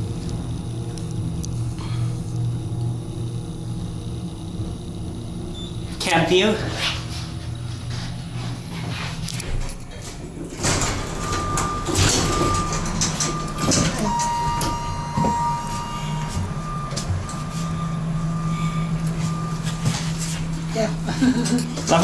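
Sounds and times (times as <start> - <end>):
long steady tone: 0.0 - 9.2, 10.5 - 22.0
elevator doors sliding and knocking: 9.1 - 20.5
short electronic beeps: 11.2 - 20.2.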